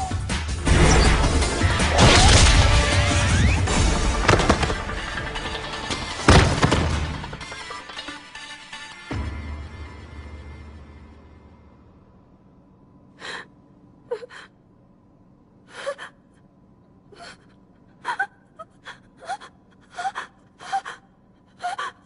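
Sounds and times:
music: 0.0 - 12.3
woman gasping and whimpering: 13.2 - 14.6, 15.6 - 16.5, 17.1 - 22.0.

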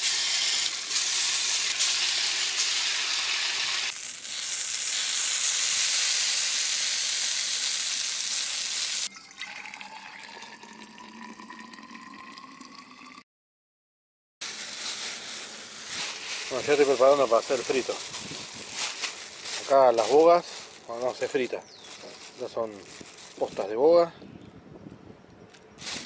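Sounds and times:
loud steady hiss: 0.0 - 9.1, 14.4 - 21.2.

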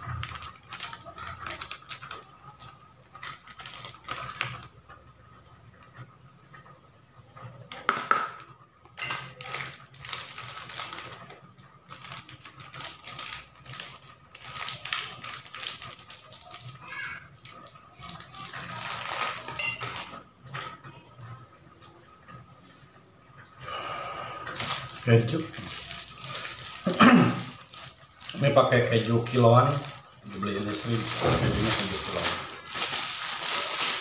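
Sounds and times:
foil sachet crinkling: 0.0 - 5.9, 9.0 - 20.2, 24.4 - 34.0
metal spoon clinking on plastic bowl: 19.6 - 20.1.

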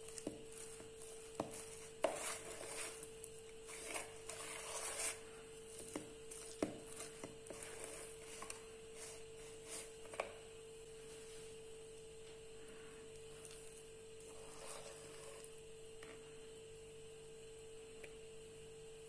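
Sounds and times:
faint steady hum: 0.0 - 19.0
spoon scraping in bowl: 0.2 - 10.2, 14.2 - 15.6.

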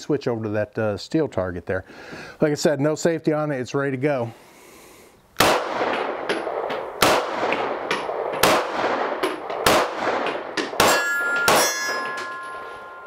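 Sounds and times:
pistol shots: 5.4 - 12.6
steel target ringing: 10.8 - 13.0.

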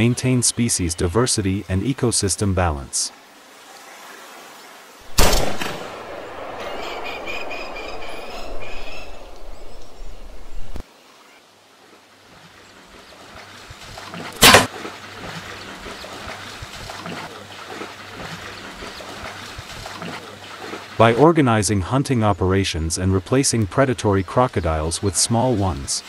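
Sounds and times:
water splashing and sloshing: 3.1 - 21.5
sharp crack: 5.1 - 6.7, 14.4 - 14.7
rifle shot echo: 5.1 - 7.9, 14.4 - 14.7.

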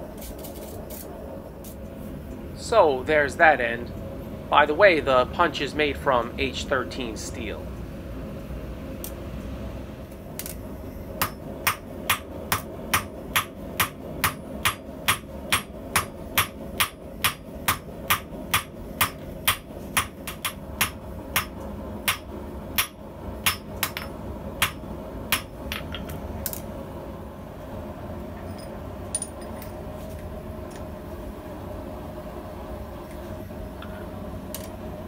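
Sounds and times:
hammer striking steel on anvil: 11.2 - 26.1.

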